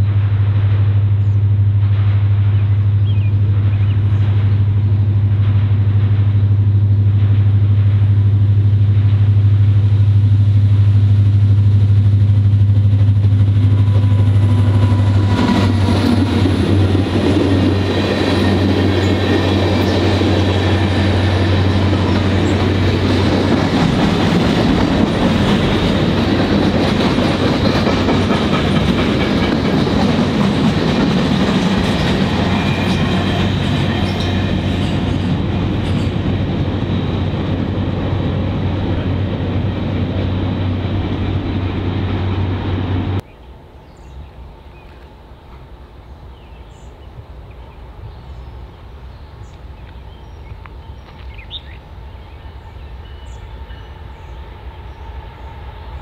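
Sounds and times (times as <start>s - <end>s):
locomotive engine drone: 0.0s - 56.0s
train wheels clattering on rails: 12.2s - 43.2s.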